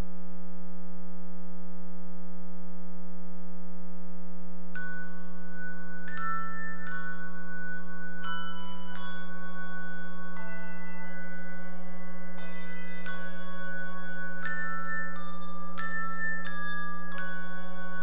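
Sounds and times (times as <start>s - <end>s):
electrical hum: 0.0s - 18.0s
handbell choir playing: 4.8s - 18.0s.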